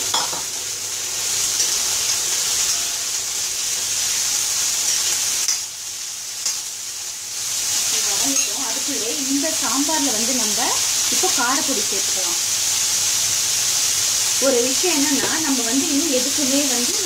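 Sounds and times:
vegetables sizzling in hot oil: 0.0s - 17.0s
metal spoon clicking against pan: 5.5s - 5.7s, 6.4s - 6.7s.

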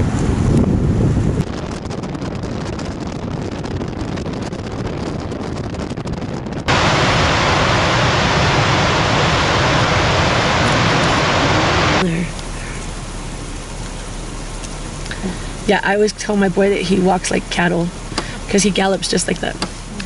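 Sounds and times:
wind buffeting microphone: 0.0s - 12.1s
waterfall roaring: 6.7s - 20.0s.

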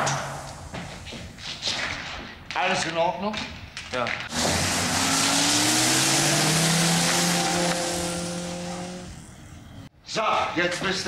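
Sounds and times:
car engine revving: 4.3s - 9.9s.

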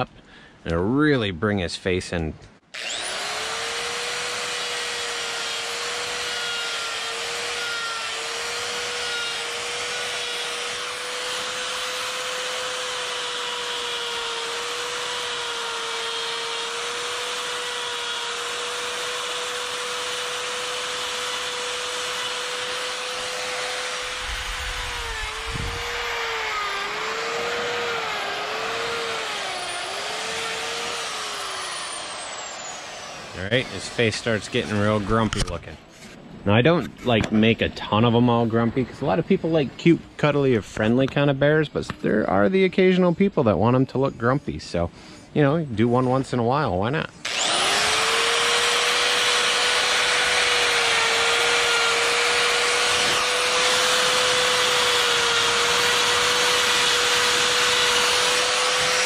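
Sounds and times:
die grinder whining carving wood: 2.7s - 35.6s, 47.2s - 59.0s.

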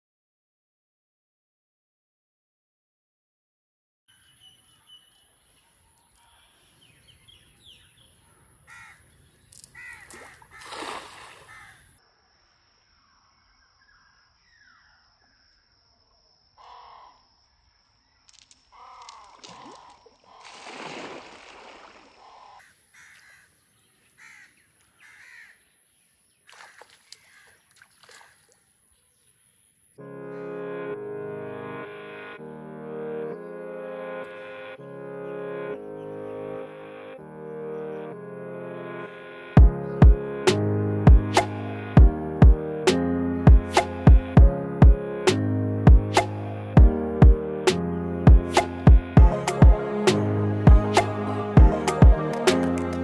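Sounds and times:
crows cawing: 8.3s - 9.1s, 9.7s - 11.9s, 16.6s - 17.2s, 18.7s - 20.6s, 22.2s - 23.6s, 24.2s - 25.6s, 26.6s - 27.6s
cast net rustling and splashing: 9.6s - 11.7s, 18.3s - 22.3s, 26.4s - 28.7s
music: 30.0s - 53.0s.

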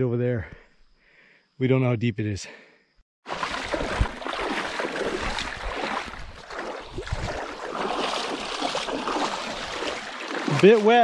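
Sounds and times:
water splashing from wading: 3.2s - 11.0s.

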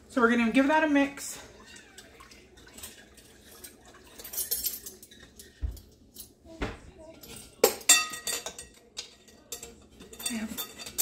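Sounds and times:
spoon clinking against glass bowl: 7.3s - 11.0s.

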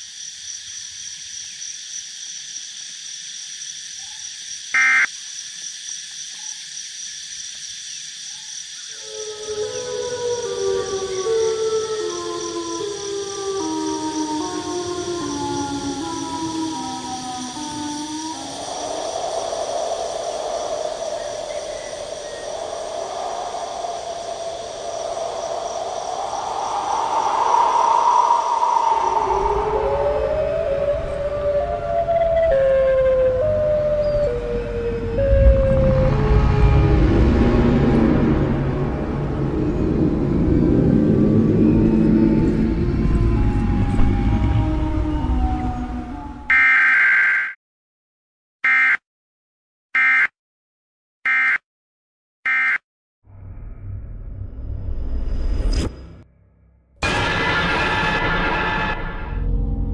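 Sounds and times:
insect chorus: 0.0s - 46.4s
frog croak: 4.8s - 5.1s
distant siren-like wail: 8.9s - 47.2s, 57.0s - 59.9s
low sustained tones: 13.8s - 46.5s.

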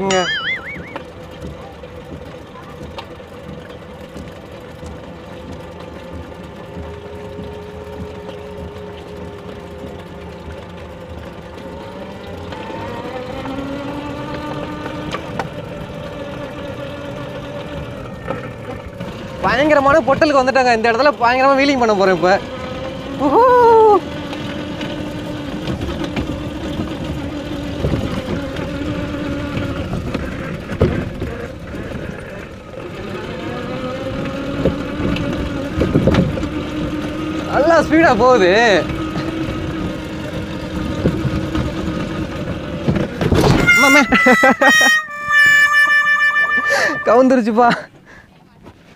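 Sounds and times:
small electric motor whining: 0.0s - 1.8s, 43.4s - 47.3s
electric motor whining: 0.0s - 2.1s, 5.7s - 47.5s.

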